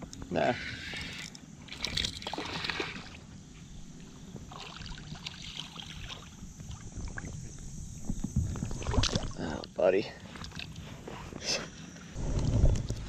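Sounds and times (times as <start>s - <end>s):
water sloshing and splashing: 1.0s - 3.4s, 4.3s - 11.0s
low steady rumble: 12.1s - 13.0s.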